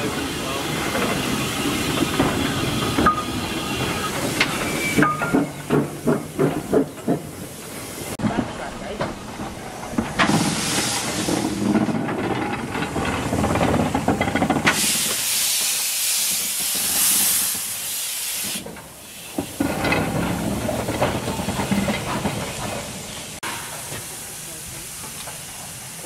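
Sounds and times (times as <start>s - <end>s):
loud hiss of steam: 0.0s - 8.2s, 9.7s - 12.0s, 14.6s - 26.0s
steam locomotive exhaust chuffs: 9.6s - 26.0s.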